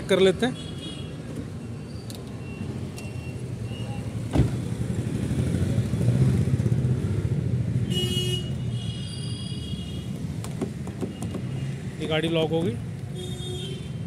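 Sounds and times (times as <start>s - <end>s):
low rumble of vehicles: 0.0s - 14.0s
car door slamming: 4.2s - 4.8s.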